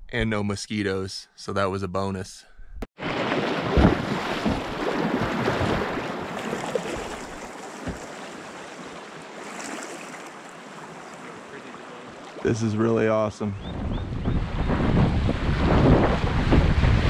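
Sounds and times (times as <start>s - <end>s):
river water rushing and splashing: 3.0s - 12.7s
knock on raft: 7.8s - 8.1s.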